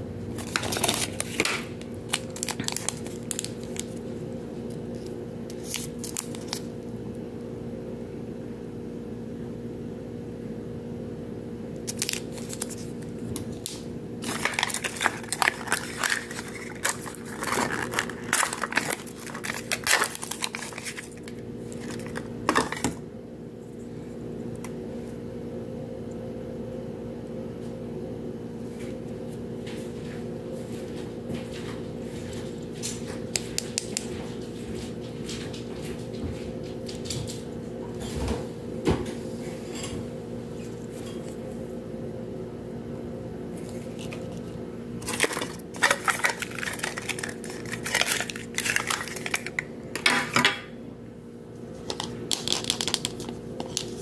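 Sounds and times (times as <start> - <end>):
steady low hum: 0.0 - 54.0
plastic wrappers crinkling and tearing: 0.3 - 6.8, 11.8 - 23.0, 43.6 - 50.4, 51.8 - 54.0.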